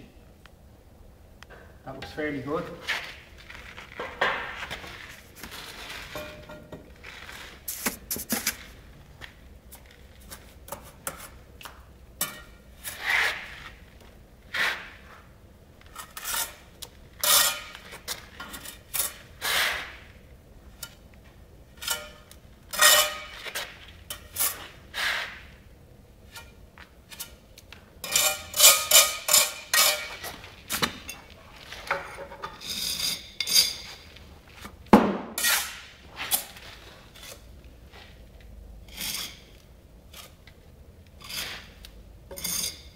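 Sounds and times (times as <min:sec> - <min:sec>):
trowel scraping mortar on bricks: 0:15.9 - 0:16.6, 0:17.2 - 0:20.1, 0:21.8 - 0:25.6, 0:28.0 - 0:30.4, 0:35.4 - 0:36.5, 0:41.2 - 0:42.9.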